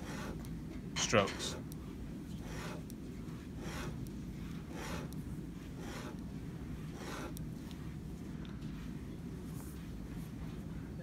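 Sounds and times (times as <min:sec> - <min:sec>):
pen scratching on paper: 0:00.0 - 0:00.5, 0:02.3 - 0:07.4
low room hum: 0:00.0 - 0:11.0.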